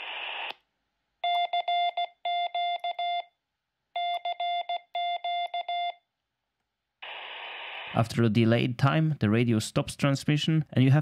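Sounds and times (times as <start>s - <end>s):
radio noise hiss: 0.0s - 0.5s, 7.0s - 8.2s
morse code beeps: 1.2s - 3.3s, 4.0s - 6.0s.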